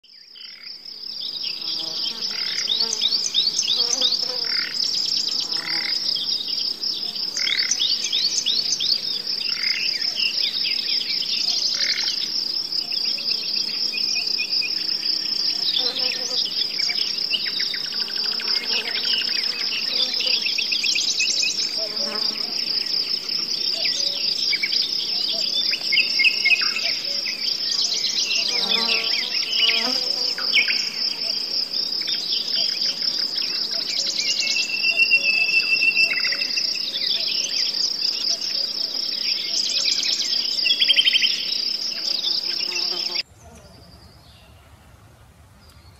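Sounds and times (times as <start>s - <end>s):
songbirds singing: 0.0s - 44.9s, 45.6s - 45.9s
high-pitched insect trill: 0.1s - 43.3s.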